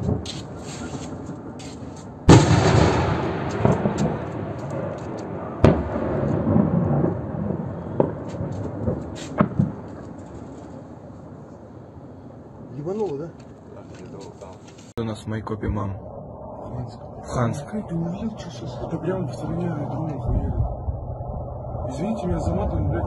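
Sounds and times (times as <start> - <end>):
sharp crack: 0.0 - 7.2, 7.9 - 10.8
heavy explosion rumbling: 2.3 - 10.4, 15.3 - 23.0.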